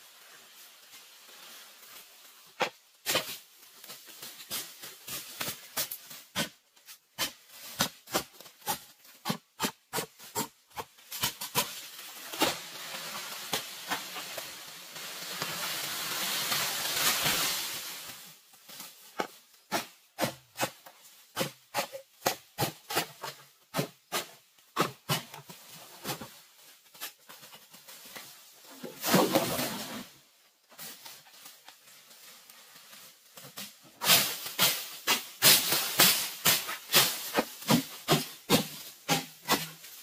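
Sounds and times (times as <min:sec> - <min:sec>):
bamboo leaves rustling: 0:00.0 - 0:40.0
blade chopping into bamboo: 0:34.0 - 0:39.7.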